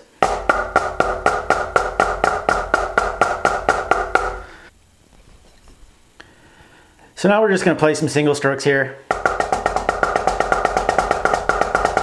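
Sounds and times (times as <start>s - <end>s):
drumsticks tapping a drum: 0.0s - 4.6s, 9.1s - 12.0s.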